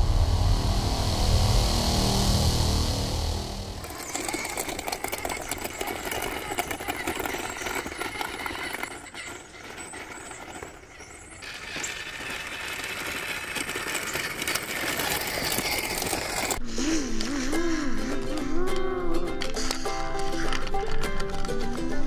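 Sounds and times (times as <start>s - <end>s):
rc truck motor whining: 3.7s - 22.0s
tyres grinding on gravel: 3.8s - 16.6s.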